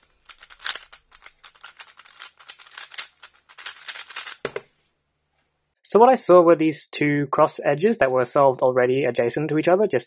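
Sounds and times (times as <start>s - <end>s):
plastic puzzle cube clicking: 0.2s - 4.6s.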